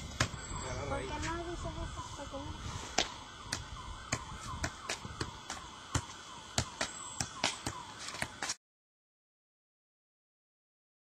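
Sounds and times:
soccer ball thuds off foot: 0:00.1 - 0:00.4, 0:03.0 - 0:08.6.

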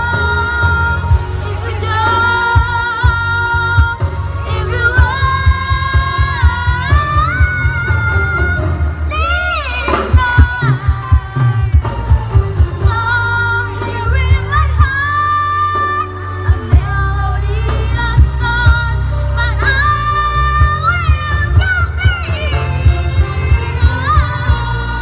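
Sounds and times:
girl singing into a microphone: 0:00.0 - 0:11.8, 0:12.8 - 0:25.0
backing music with heavy bass beat: 0:00.0 - 0:15.2.

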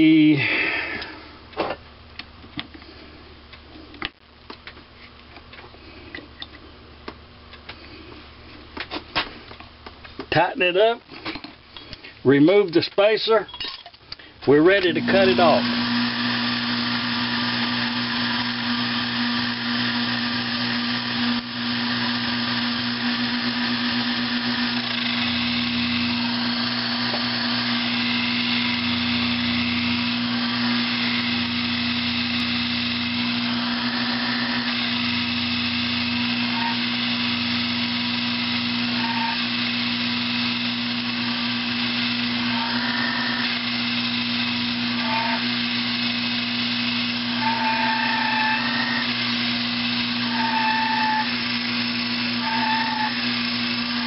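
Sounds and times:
lathe motor hum: 0:14.7 - 0:54.0
lathe tool cutting metal: 0:14.7 - 0:54.0.

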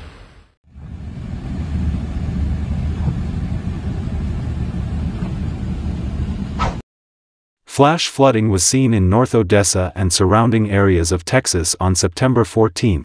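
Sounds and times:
low rumble of traffic: 0:00.7 - 0:06.6.

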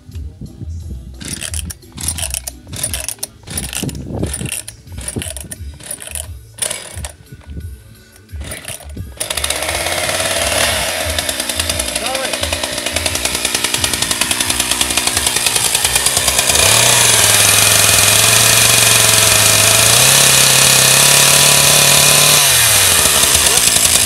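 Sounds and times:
background music with low beat: 0:00.0 - 0:16.1
chainsaw engine running: 0:01.2 - 0:24.0
recoil starter rasping: 0:01.2 - 0:24.0.

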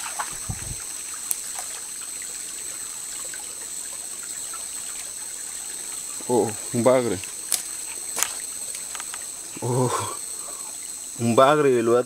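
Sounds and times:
stream trickling over stones: 0:00.0 - 0:12.0.

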